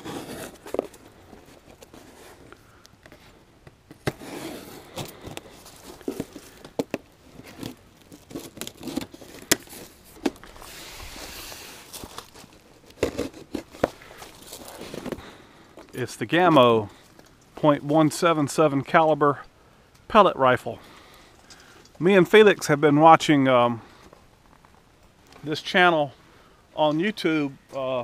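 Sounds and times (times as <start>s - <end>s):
knife cutting cardboard box: 0.0s - 2.4s, 4.0s - 5.4s, 7.4s - 10.4s, 13.0s - 13.9s
packing tape tearing: 0.0s - 2.4s, 4.0s - 15.2s.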